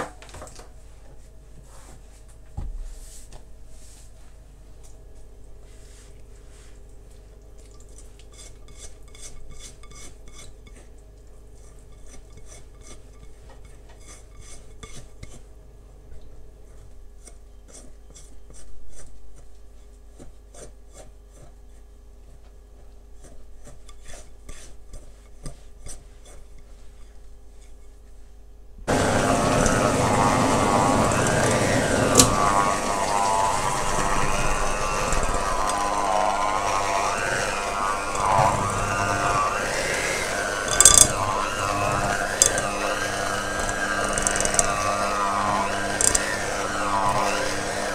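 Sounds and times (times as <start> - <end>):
food grated on metal grater: 8.3 - 10.9, 28.9 - 47.9.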